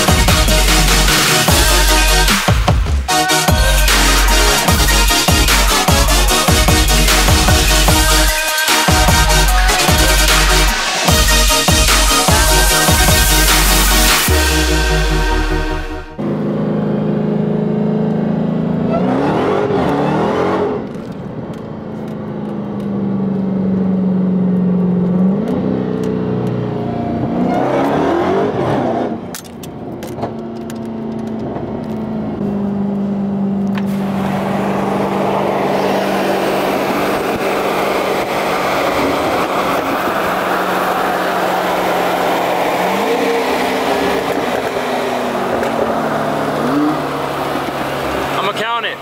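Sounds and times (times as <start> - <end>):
car engine running hard: 0.0 - 49.0
wind and road noise: 16.2 - 49.0.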